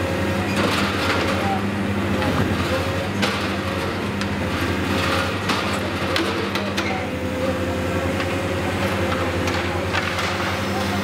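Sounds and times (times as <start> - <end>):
excavator diesel engine running: 0.0 - 11.0
demolition knocks and clanks: 0.5 - 1.6, 2.2 - 7.0, 8.3 - 10.6.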